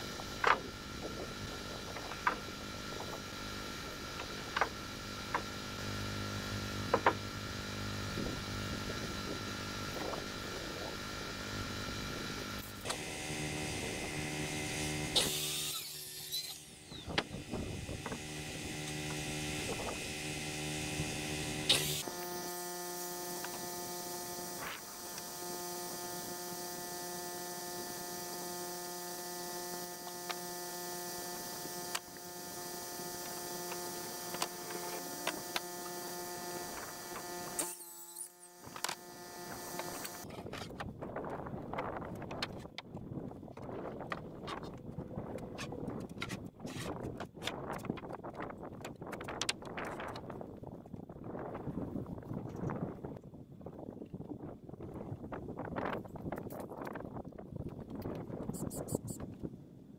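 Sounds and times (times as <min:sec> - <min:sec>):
generator engine humming: 0:00.0 - 0:15.6, 0:16.6 - 0:37.6.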